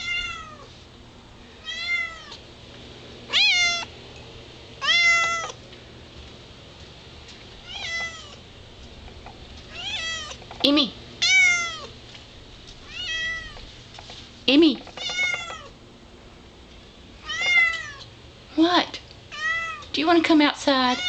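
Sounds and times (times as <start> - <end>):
cat meowing: 0.0 - 0.7, 1.6 - 2.4, 3.3 - 3.9, 4.8 - 5.6, 7.6 - 8.4, 9.7 - 10.4, 11.2 - 11.9, 12.8 - 13.6, 15.0 - 15.8, 17.2 - 18.1, 19.3 - 19.9.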